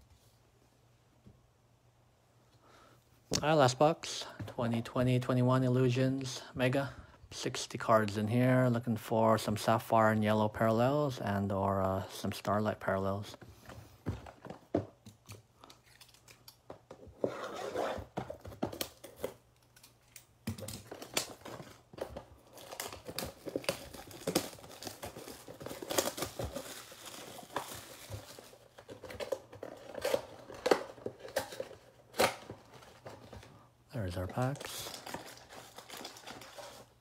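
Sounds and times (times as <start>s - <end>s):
plastic shrink-wrap crackling: 22.4s - 28.8s.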